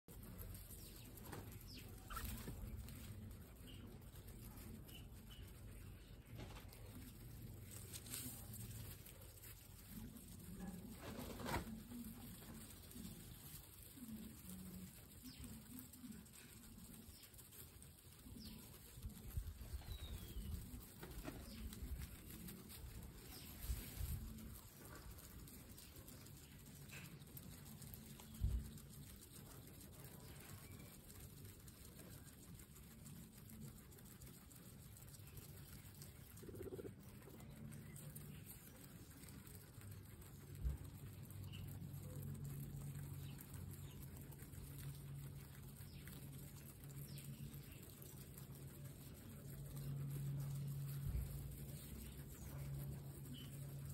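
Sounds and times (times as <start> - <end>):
guinea pigs chewing grass: 0.0 - 53.9
guinea pig cooing: 0.1 - 53.9
faint bird chirps: 0.7 - 3.0, 35.2 - 38.6.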